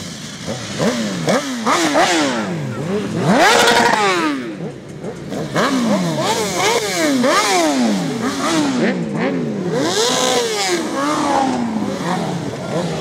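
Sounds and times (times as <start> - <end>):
motorcycles revving past: 0.0 - 13.0.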